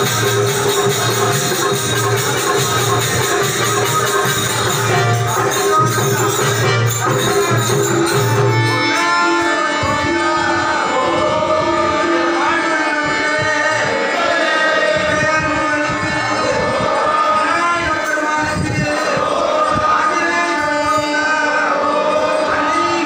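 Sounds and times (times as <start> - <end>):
hand drum: 0.0 - 8.8
steady drone: 0.0 - 18.2
group of voices singing: 0.0 - 23.0.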